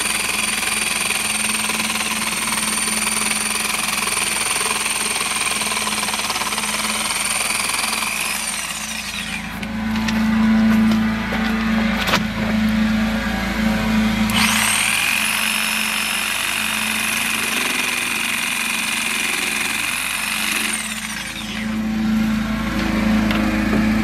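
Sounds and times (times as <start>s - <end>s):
jigsaw cutting board: 0.0s - 11.0s, 14.3s - 21.8s.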